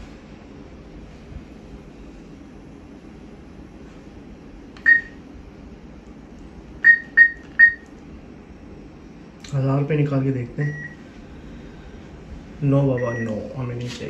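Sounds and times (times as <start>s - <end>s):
low steady hum: 0.0s - 14.0s
keypad beeping: 4.8s - 5.2s, 6.8s - 7.9s, 13.0s - 13.4s.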